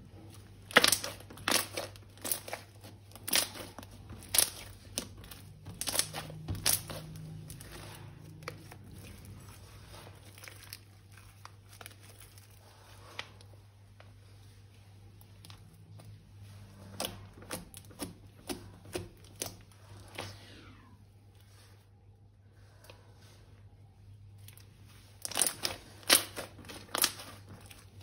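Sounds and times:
crinkling and crackling: 0.0 - 20.3, 24.3 - 28.0.

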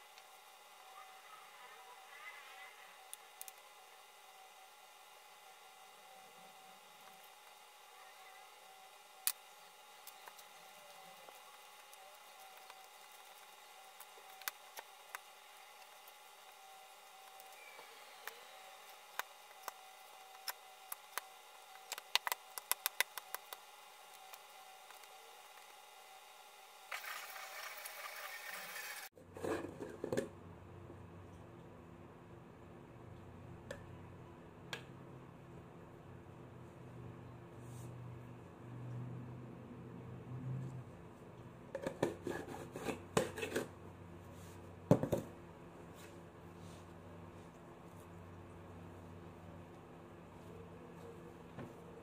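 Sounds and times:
dough kneading clicks and taps: 19.1 - 25.1.

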